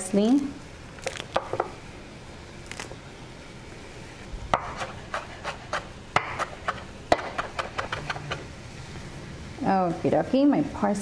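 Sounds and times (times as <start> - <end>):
knife chopping on wooden board: 4.6 - 8.4.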